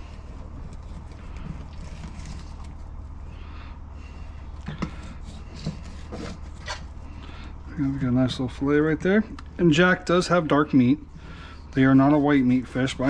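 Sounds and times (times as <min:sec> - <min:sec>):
steady low hum: 0:00.0 - 0:13.0
knife slicing and scraping: 0:04.9 - 0:07.0.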